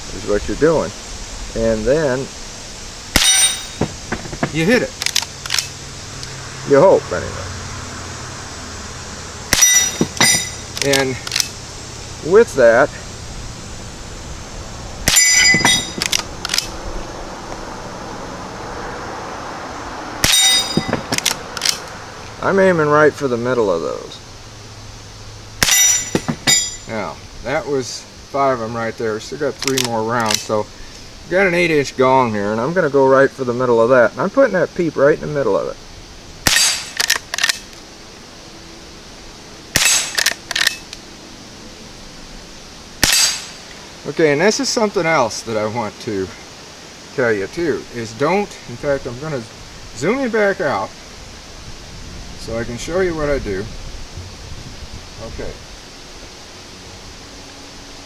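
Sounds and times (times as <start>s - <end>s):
steady background hiss: 0.0s - 58.0s
rifle lever metallic clicks: 5.0s - 5.7s, 10.2s - 11.6s, 15.1s - 16.7s, 21.1s - 21.9s, 29.6s - 30.4s, 36.5s - 37.8s, 39.8s - 41.0s
rifle shots: 25.6s - 26.8s, 36.4s - 37.6s, 39.8s - 40.8s, 43.0s - 43.7s.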